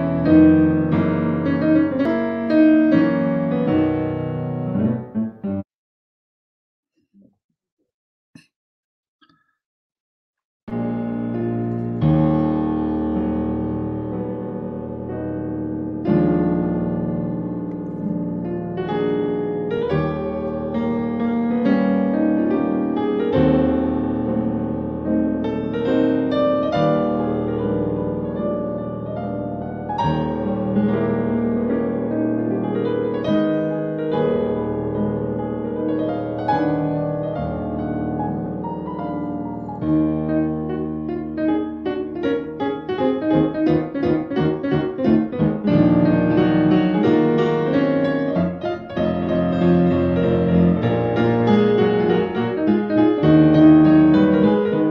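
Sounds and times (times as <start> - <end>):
slow piano chords: 0.0 - 5.6, 10.7 - 54.9.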